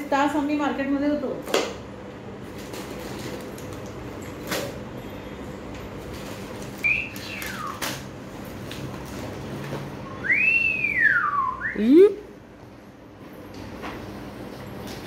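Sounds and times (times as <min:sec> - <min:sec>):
plastic packets rustling: 0:02.5 - 0:04.7, 0:05.9 - 0:09.7
high sliding whistle call: 0:06.8 - 0:07.8, 0:10.0 - 0:11.8.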